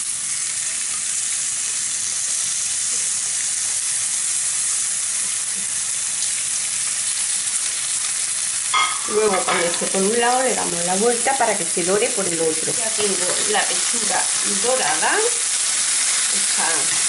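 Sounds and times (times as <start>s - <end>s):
chicken frying in hot oil: 0.0s - 17.0s.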